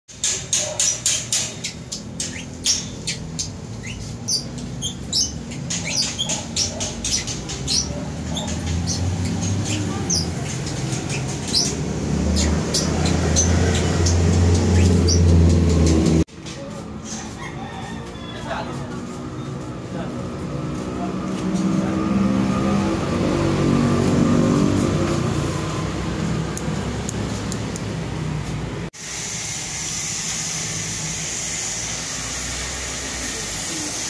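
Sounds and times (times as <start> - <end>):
small birds chirping: 0.1 - 16.0.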